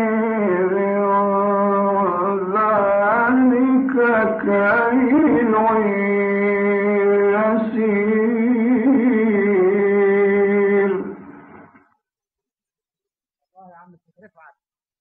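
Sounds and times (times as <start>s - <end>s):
man reciting melodically: 0.0s - 11.4s.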